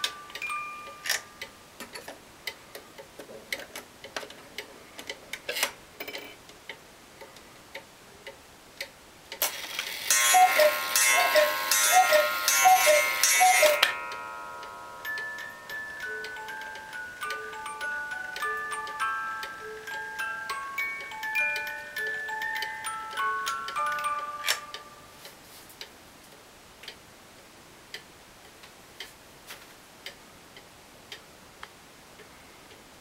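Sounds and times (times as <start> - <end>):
clock ticking and clicking: 0.0 - 27.0, 30.0 - 32.8
cuckoo clock calls: 9.5 - 25.3.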